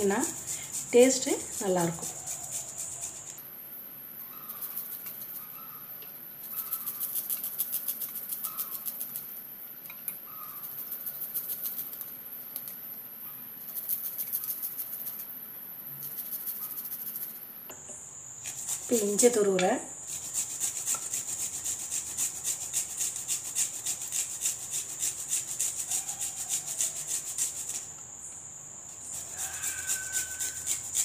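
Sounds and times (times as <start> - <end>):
garlic grated on metal grater: 0.0 - 3.1, 18.5 - 27.9, 29.0 - 31.0.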